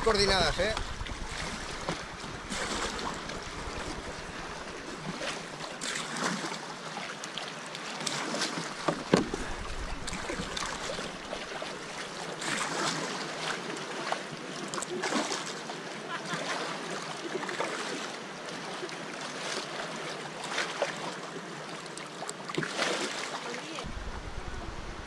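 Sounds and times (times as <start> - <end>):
wind on microphone: 0.0 - 5.6, 9.2 - 11.9, 23.8 - 25.0
water splashing and lapping: 0.0 - 24.9.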